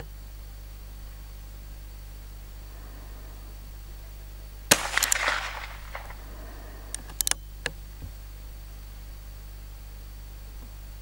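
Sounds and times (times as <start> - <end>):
metallic gun clicks: 4.7 - 6.3
gunshot with echo: 4.7 - 6.7.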